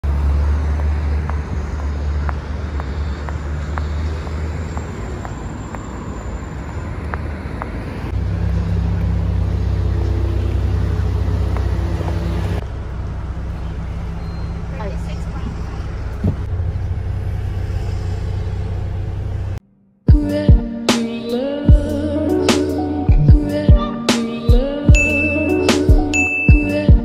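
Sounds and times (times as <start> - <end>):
vehicle engine rumbling: 0.0 - 20.3.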